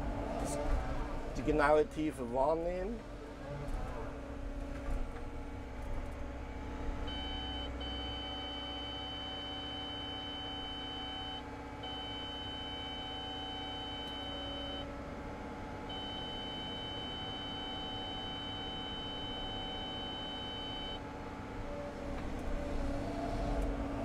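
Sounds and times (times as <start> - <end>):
excavator engine running: 0.0 - 24.0
high beep tone alert: 7.1 - 14.8.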